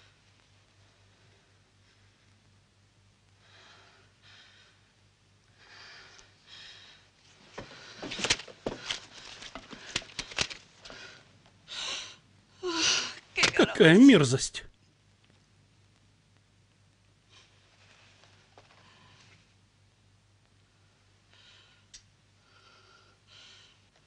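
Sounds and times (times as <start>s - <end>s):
soft breaths: 3.3s - 13.3s, 17.2s - 19.6s, 20.6s - 24.0s
paper crackling and rustling: 8.0s - 10.9s.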